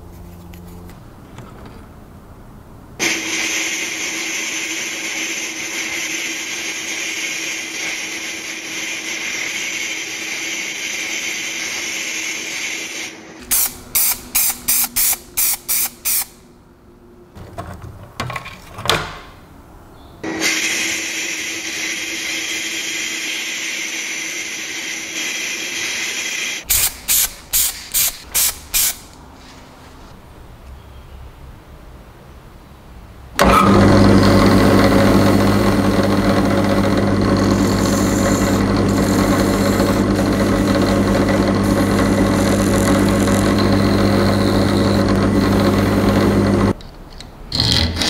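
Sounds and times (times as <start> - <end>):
short hissing bursts: 12.0 - 16.4, 25.2 - 29.5
abrasive blasting hiss: 25.2 - 29.1.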